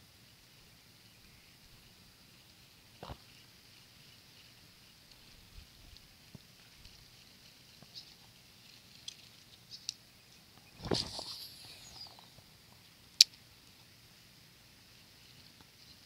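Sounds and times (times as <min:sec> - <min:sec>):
fishing rod swinging rush: 0:10.8 - 0:12.2
sharp reel click: 0:10.8 - 0:12.3.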